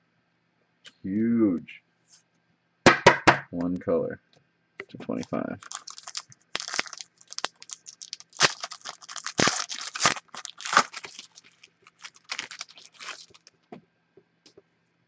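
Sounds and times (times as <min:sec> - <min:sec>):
wrapper crinkling and tearing: 0:05.2 - 0:13.7.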